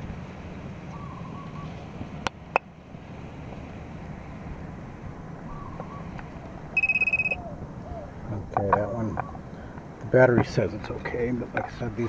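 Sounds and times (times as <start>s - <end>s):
low wind rumble on microphone: 0.0s - 12.0s
rapidly pulsing high beep: 6.8s - 7.4s.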